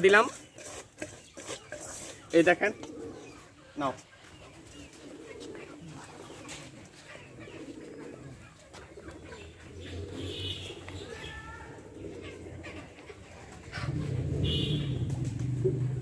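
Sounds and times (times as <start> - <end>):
goat muzzle scraping steel bowl: 0.0 - 3.2
birds cooing: 0.0 - 16.0.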